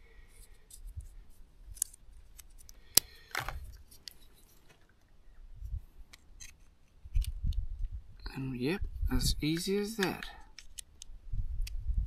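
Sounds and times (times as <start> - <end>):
plastic parts clicking together: 9.5 - 11.8.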